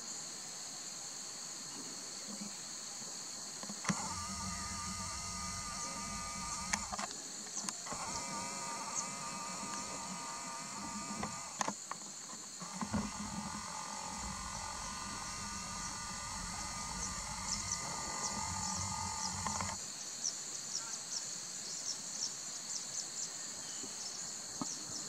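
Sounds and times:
high-pitched insect chorus: 0.0 - 25.0
faint short clicks: 3.6 - 12.0.

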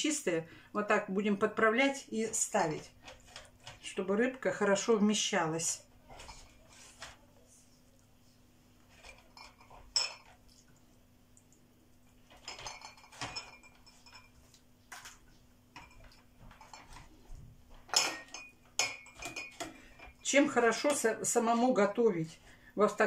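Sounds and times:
faint steady hum: 0.0 - 23.0
glass jars clinking on metal tray: 12.3 - 14.4, 17.8 - 21.0.

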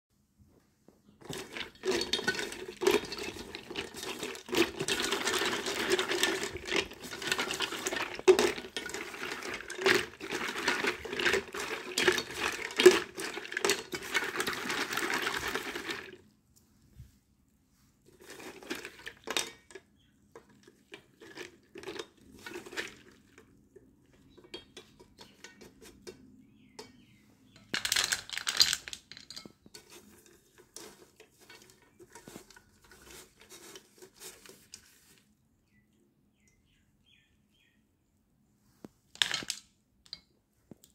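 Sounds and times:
water sloshing in a bowl: 1.2 - 16.2, 18.1 - 19.8, 20.4 - 26.1.

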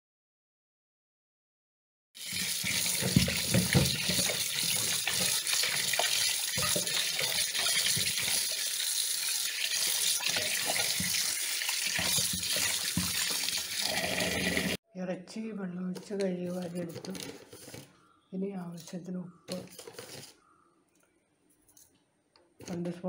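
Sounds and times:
tap water running into steel bowl: 2.2 - 14.8
water splashing: 2.2 - 14.8.

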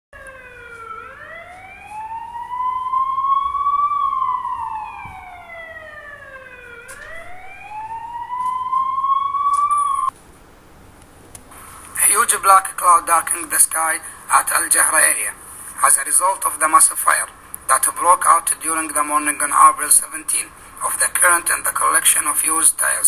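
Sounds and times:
siren wailing: 0.2 - 10.1.

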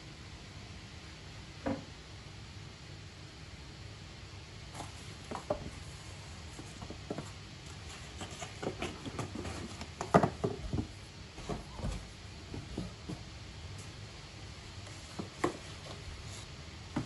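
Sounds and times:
cardboard boxes knocking on wooden floor: 8.2 - 13.3.

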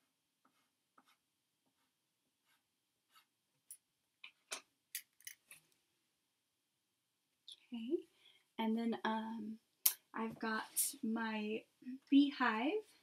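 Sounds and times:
chalk scratching on paper: 0.4 - 3.4.

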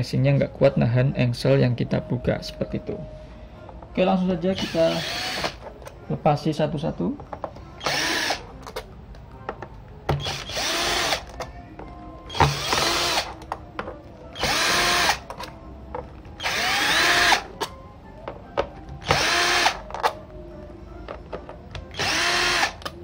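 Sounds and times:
cordless drill motor whine: 4.5 - 5.6, 7.8 - 8.4, 10.2 - 11.2, 12.3 - 13.3, 14.4 - 15.2, 16.4 - 17.4, 19.0 - 19.8, 21.9 - 22.8.

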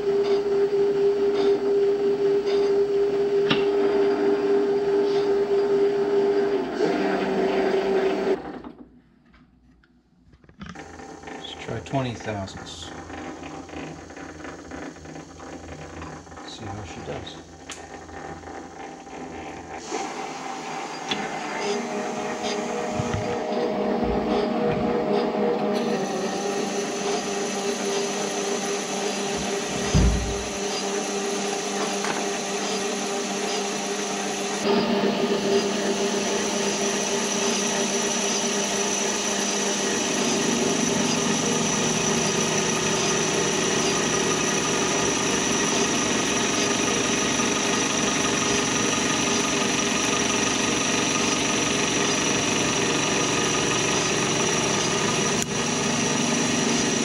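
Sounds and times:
metal lathe whine: 0.0 - 8.6, 10.6 - 57.0
short thump: 29.8 - 30.4.

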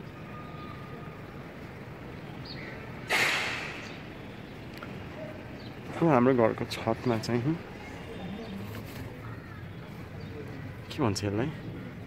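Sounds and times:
burst of breathy noise: 3.1 - 3.9.

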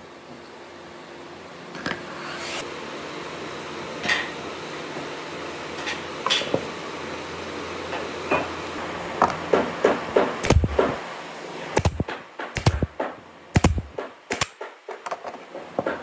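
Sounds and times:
nail gun shots into wood: 10.4 - 11.0, 11.8 - 14.8.

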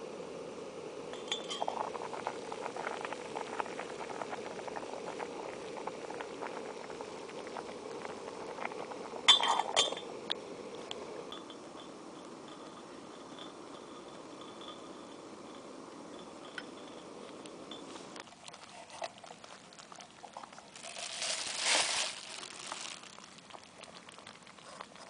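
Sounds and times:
pot boiling and bubbling: 0.0 - 25.0
metal lid clinking: 1.1 - 1.8, 9.3 - 10.0.

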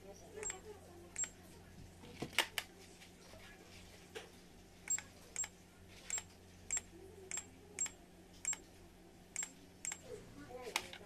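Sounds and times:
button clicks with short beeps: 6.1 - 8.6.

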